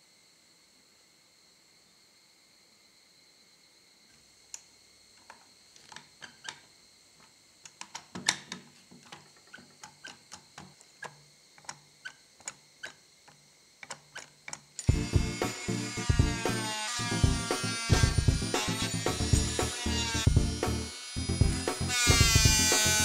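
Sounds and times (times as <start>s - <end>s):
plastic parts clicking and knocking: 7.6s - 14.9s.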